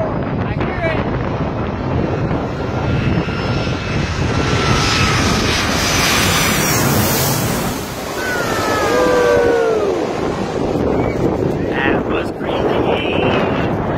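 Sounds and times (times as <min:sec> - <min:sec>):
jet airliner passing overhead: 0:00.0 - 0:13.9
wind: 0:00.0 - 0:13.9
surf: 0:05.9 - 0:13.8
man whooping: 0:08.2 - 0:10.4.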